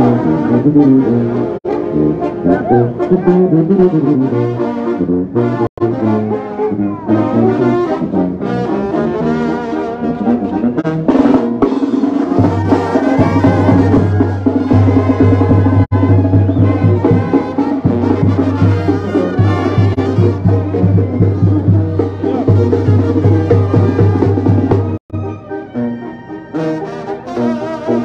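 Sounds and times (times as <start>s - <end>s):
trumpets and trombones: 0.0s - 28.0s
tuba bass line: 0.0s - 28.0s
bass drum beat: 10.6s - 25.0s.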